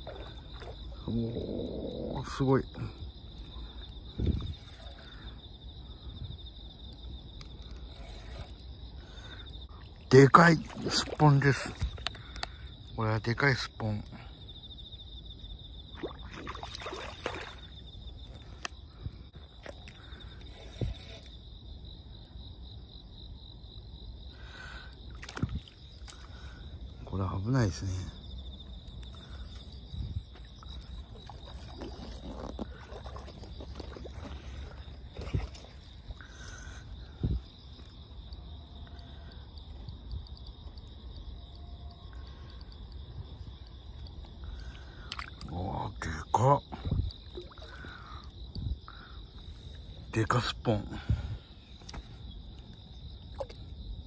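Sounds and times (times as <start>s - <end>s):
insects trilling: 0.0s - 54.0s
water splashing: 9.9s - 12.0s, 15.9s - 17.8s, 30.6s - 35.9s.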